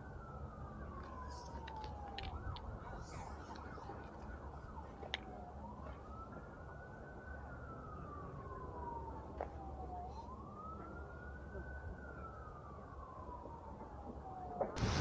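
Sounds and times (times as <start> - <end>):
faint siren wailing: 0.0 - 15.0
low rumble: 14.8 - 15.0.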